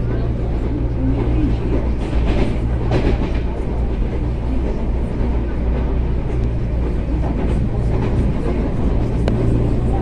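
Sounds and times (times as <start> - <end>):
train wheels rumbling on rails: 0.0 - 10.0.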